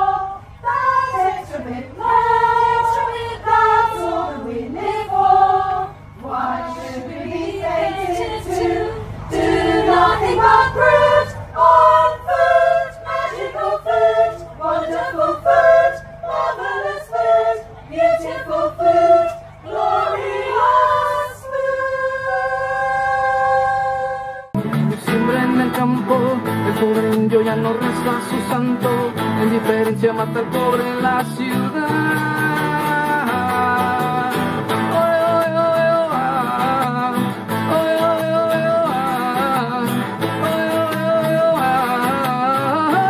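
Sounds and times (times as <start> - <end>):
women's choir singing a cappella: 0.0 - 24.6.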